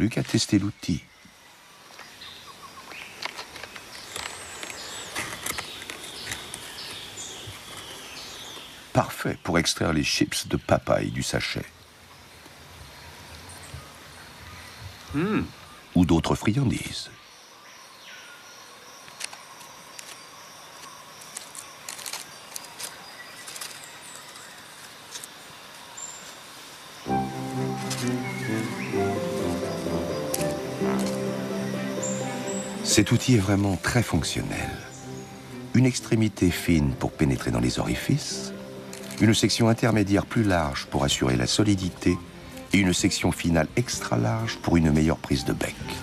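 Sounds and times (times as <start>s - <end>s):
faint hiss with high tones: 23.8s - 46.0s
high wavering bird calls: 27.0s - 41.0s.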